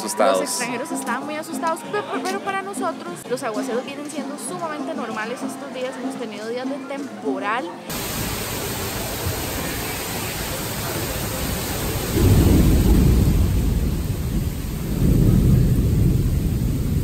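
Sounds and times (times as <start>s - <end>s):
deep rumbling surges: 7.9s - 17.0s
heavy rain pouring: 7.9s - 17.0s.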